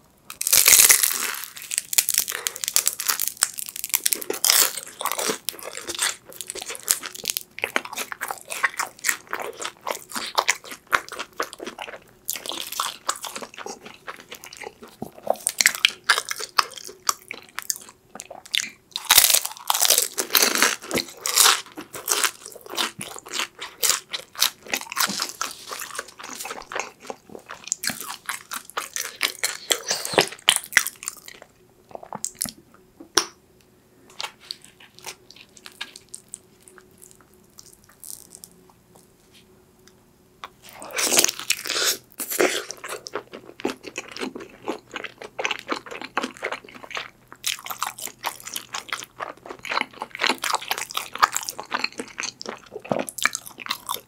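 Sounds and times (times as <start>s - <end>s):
crisp wrapper crackling: 0.3s - 7.5s
crunching and chewing: 0.3s - 33.3s, 34.1s - 39.1s, 40.4s - 54.0s.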